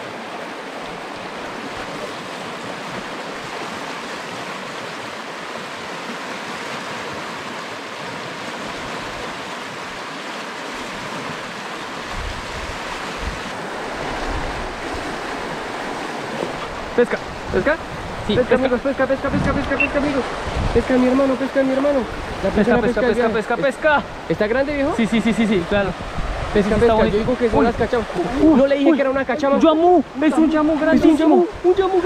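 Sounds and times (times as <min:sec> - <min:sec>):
river water over rapids: 0:00.0 - 0:32.0
wind buffeting microphone: 0:10.8 - 0:21.3, 0:22.0 - 0:32.0.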